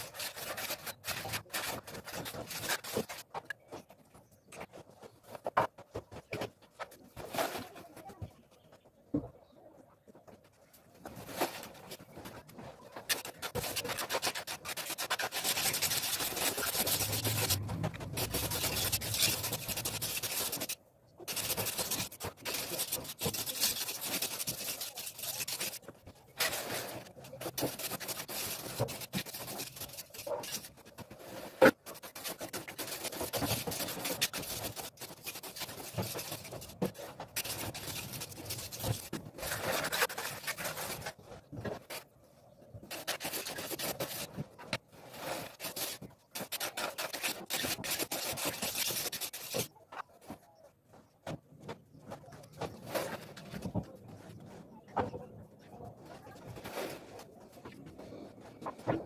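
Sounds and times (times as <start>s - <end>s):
steel trowel scraping cement: 0.0s - 3.2s, 13.1s - 41.2s, 42.8s - 49.7s.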